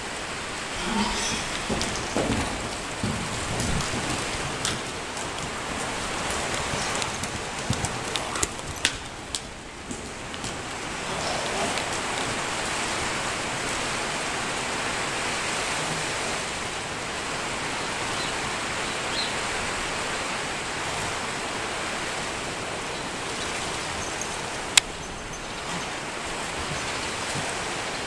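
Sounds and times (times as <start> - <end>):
steady hiss: 0.0 - 7.2.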